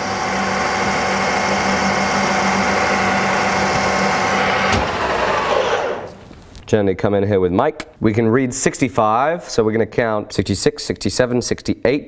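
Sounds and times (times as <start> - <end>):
metal lathe humming: 0.0 - 6.2.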